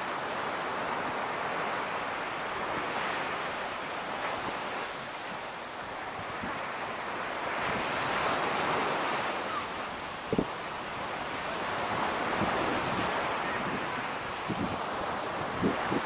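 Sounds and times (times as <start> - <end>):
ocean surf breaking: 0.0 - 16.0
wind buffeting microphone: 10.2 - 10.6, 11.2 - 16.0.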